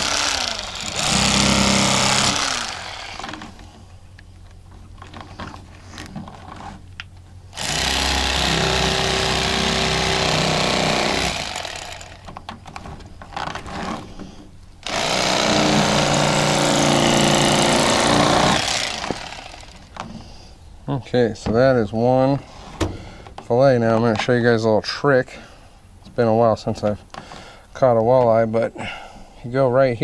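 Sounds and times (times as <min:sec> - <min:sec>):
electric fillet knife buzzing: 0:00.0 - 0:03.6, 0:07.6 - 0:12.2, 0:14.8 - 0:19.9.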